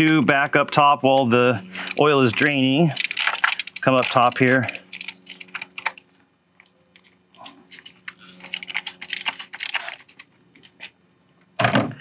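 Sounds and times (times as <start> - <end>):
ratchet wrench clicking: 1.8 - 5.9, 8.4 - 10.3.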